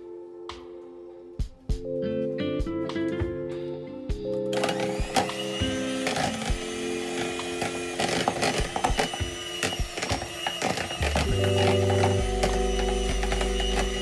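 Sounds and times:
background music with held chords: 0.0s - 14.0s
electric hand mixer whirring: 4.5s - 14.0s.

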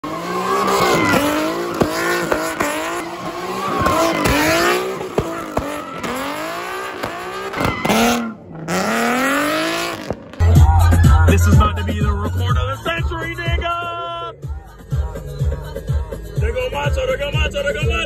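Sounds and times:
car engine revving hard: 0.0s - 10.4s
tire squeal: 0.0s - 11.2s.

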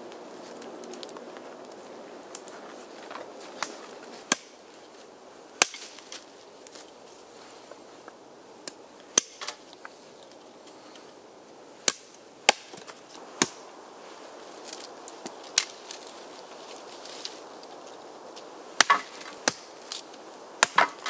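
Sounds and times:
hatchet chopping wood: 4.3s - 4.6s, 5.6s - 6.0s, 9.2s - 9.6s, 11.8s - 13.6s, 18.8s - 19.7s, 20.6s - 21.0s.

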